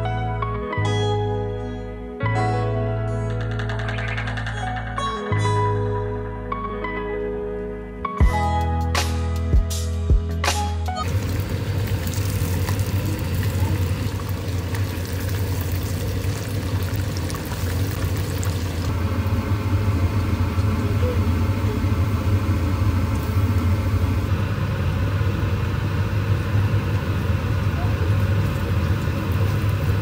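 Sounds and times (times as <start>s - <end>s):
low hum: 11.0s - 30.0s
oil crackling and sizzling: 11.0s - 30.0s.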